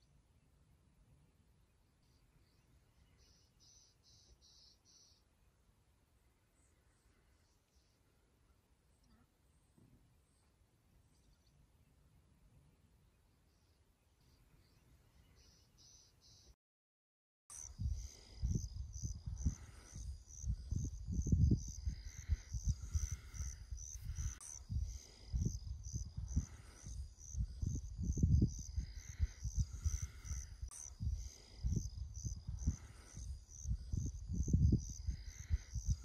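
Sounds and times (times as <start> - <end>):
insects trilling: 17.5 - 36.0
wind rumbling on microphone: 17.6 - 36.0.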